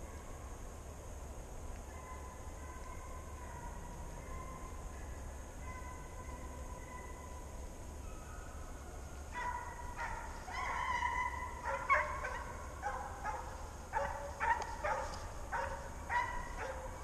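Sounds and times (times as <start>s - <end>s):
hounds baying: 9.3s - 17.0s.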